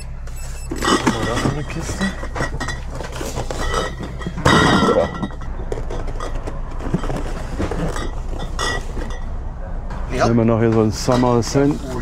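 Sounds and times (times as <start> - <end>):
glass bottles clinking: 0.7 - 9.3.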